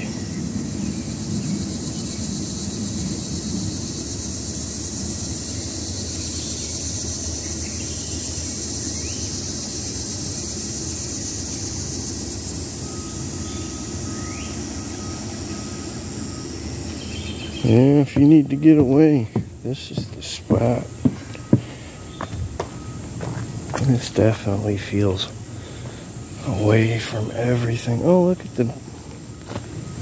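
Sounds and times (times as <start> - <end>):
insect chorus: 0.0 - 30.0.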